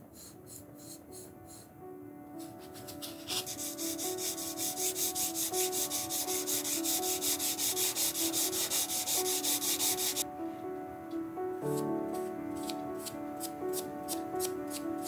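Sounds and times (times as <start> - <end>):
sandpaper rubbing on metal: 2.4 - 10.2.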